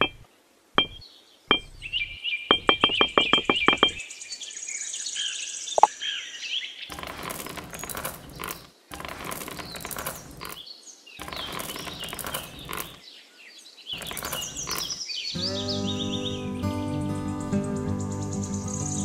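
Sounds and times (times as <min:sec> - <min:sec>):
birds chirping: 0:00.0 - 0:19.0
pebbles clattering onto tiles: 0:06.9 - 0:10.6, 0:11.2 - 0:13.0, 0:14.0 - 0:15.0.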